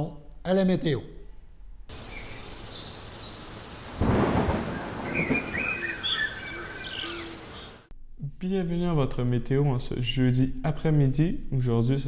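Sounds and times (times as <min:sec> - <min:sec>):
bird chirps: 0:01.9 - 0:07.9
rain hiss: 0:01.9 - 0:07.9
thunder clap rumbling: 0:03.4 - 0:07.5.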